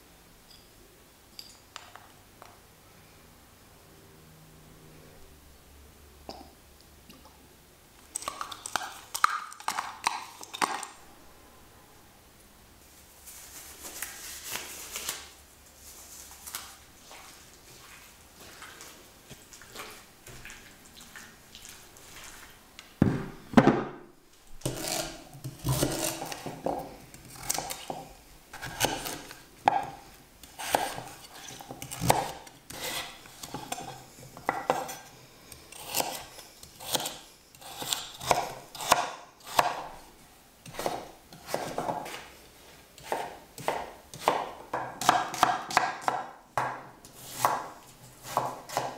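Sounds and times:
knife chopping on wooden board: 31.8 - 34.9, 36.8 - 39.9, 43.0 - 48.9.

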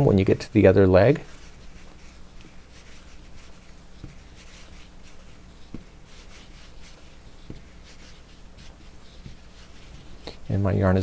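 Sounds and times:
yarn rustling through stitches: 0.0 - 11.0
faint taps: 7.4 - 7.7.

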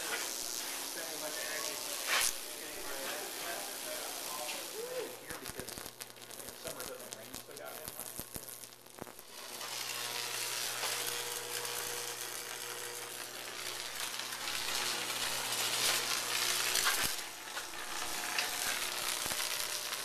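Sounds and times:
electric arc sizzling and crackling: 0.0 - 20.0.

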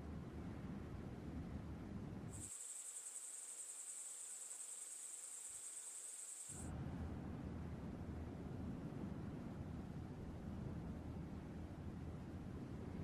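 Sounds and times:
crickets chirring: 2.3 - 6.7.

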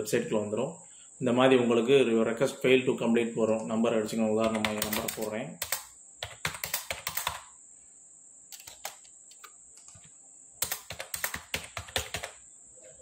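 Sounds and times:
faint high-pitched whine: 0.0 - 13.0
typing on computer keyboard: 4.4 - 7.5, 8.5 - 12.4.

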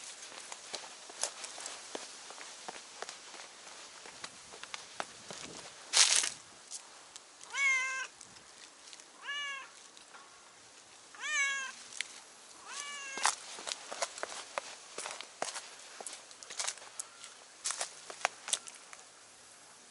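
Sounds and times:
footsteps on concrete steps: 0.0 - 7.5, 12.7 - 18.8
cat meowing: 7.5 - 8.1, 9.2 - 9.8, 11.2 - 11.8, 12.6 - 13.3.

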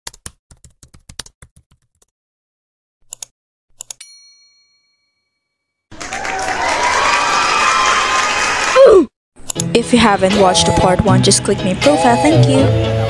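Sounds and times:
keyboard typing: 0.1 - 2.1.

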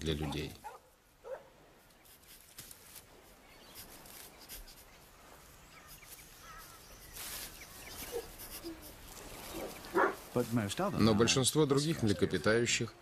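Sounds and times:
faint steady hiss: 0.0 - 13.0
faint animal calls: 5.8 - 10.2.

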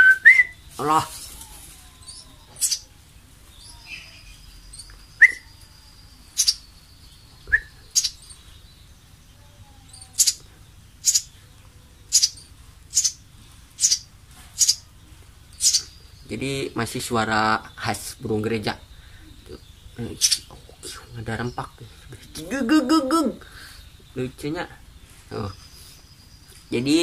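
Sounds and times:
bird fledglings begging chirps: 0.0 - 27.0.

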